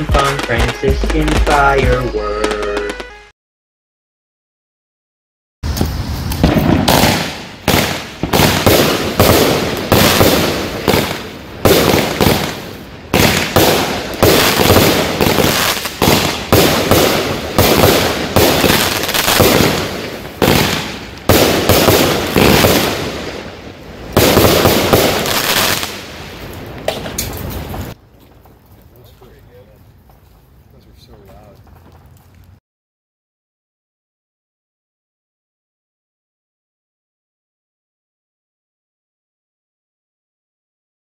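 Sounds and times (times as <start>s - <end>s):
fireworks cake bangs: 5.6s - 23.5s, 24.1s - 26.2s.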